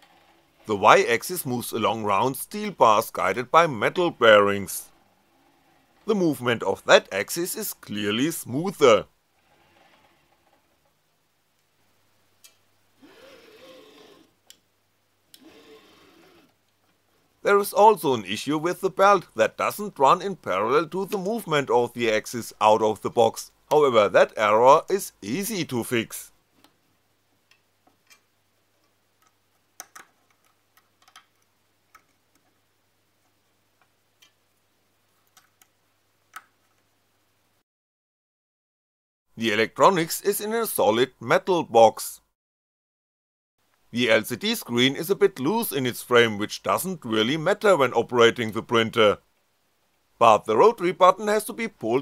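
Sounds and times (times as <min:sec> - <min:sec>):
small metallic clicks and taps: 0:27.5 - 0:32.6.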